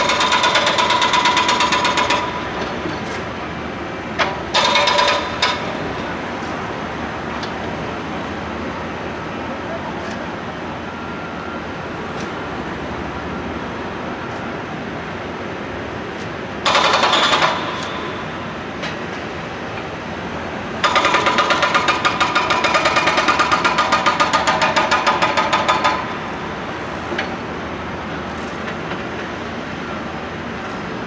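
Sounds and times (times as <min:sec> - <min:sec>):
hydraulic breaker hammering pavement: 0:00.0 - 0:03.2, 0:04.2 - 0:06.0, 0:16.6 - 0:19.0, 0:20.8 - 0:26.3.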